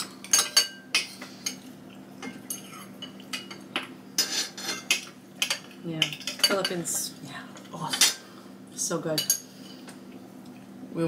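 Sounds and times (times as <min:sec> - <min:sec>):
cutlery clinking on plates: 0:00.2 - 0:06.8.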